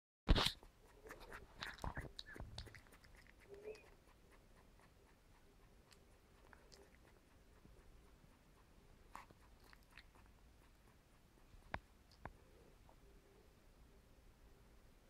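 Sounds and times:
puppy mouth smacking: 0.3s - 7.6s, 9.1s - 12.4s.

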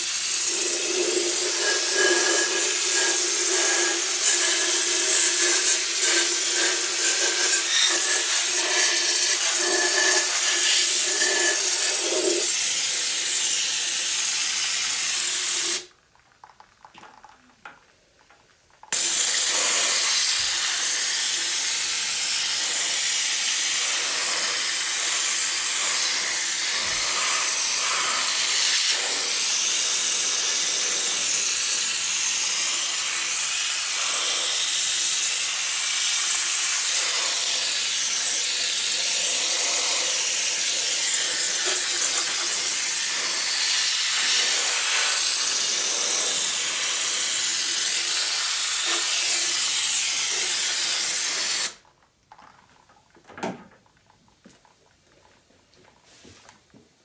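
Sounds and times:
compressed air spray hissing: 0.0s - 15.9s, 18.9s - 51.8s.

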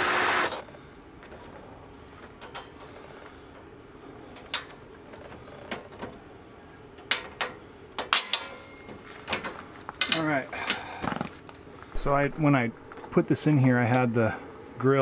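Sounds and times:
metal grill guard clicking: 7.0s - 8.9s.

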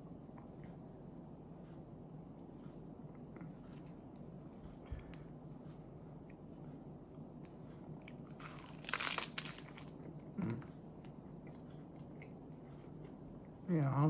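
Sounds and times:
chewing: 8.0s - 13.6s
seaweed wrapper crunching: 8.4s - 10.0s.

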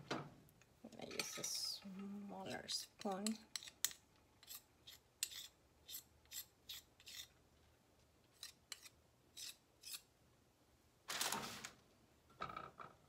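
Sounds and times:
metal spoon scraping glass bowl: 2.5s - 7.3s.

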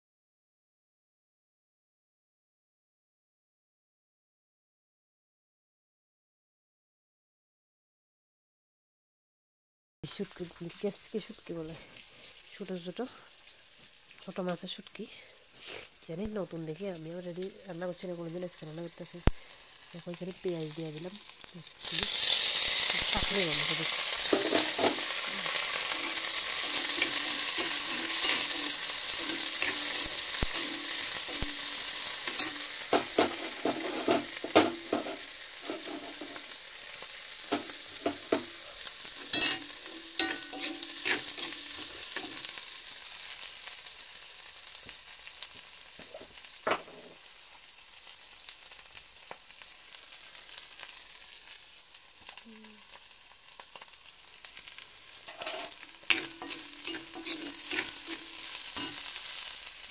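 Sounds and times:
onions sizzling in hot oil: 10.0s - 59.9s
metal spatula scraping pan: 23.8s - 36.6s, 37.5s - 42.6s, 55.2s - 59.6s.

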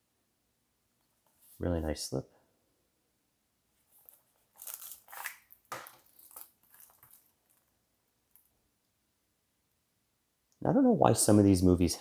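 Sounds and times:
plastic wrap crinkling: 3.9s - 8.5s.

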